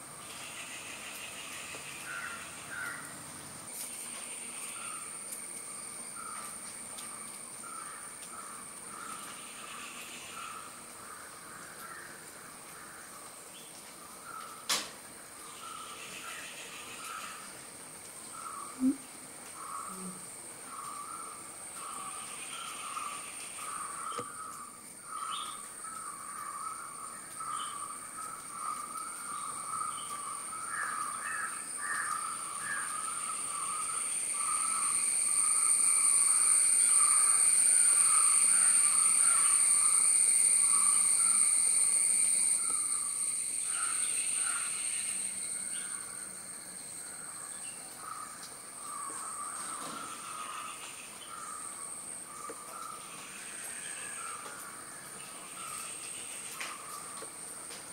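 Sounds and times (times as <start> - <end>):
high-pitched insect drone: 0.1 - 10.8, 15.5 - 17.6, 18.4 - 57.1
rapid repeated bird calls: 0.2 - 3.2, 15.4 - 17.7, 18.3 - 46.0.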